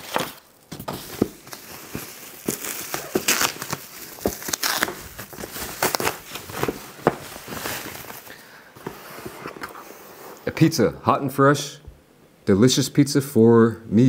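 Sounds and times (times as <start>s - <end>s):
foil crinkling and tearing: 0.0s - 8.4s.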